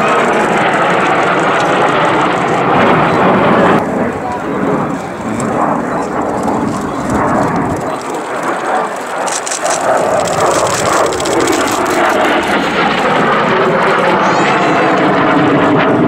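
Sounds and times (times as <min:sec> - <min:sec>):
jet flying overhead: 0:00.0 - 0:16.0.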